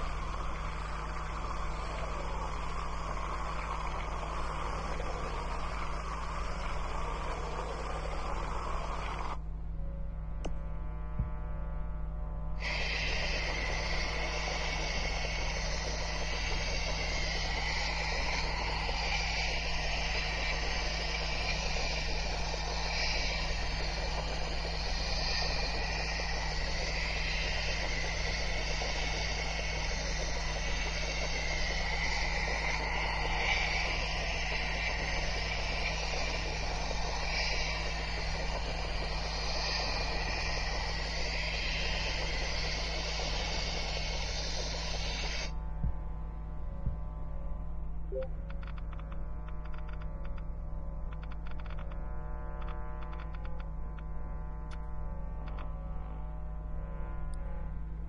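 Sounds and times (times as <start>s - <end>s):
steady hiss: 0.0s - 9.4s, 12.6s - 46.3s
constant low hum: 0.0s - 58.0s.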